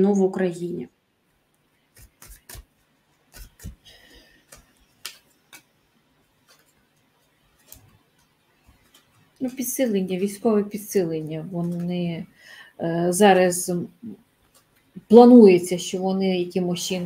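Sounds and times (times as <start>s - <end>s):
cards rustling: 1.9s - 10.4s
cards clicking and tapping: 3.3s - 5.7s, 6.4s - 6.8s, 7.6s - 9.8s.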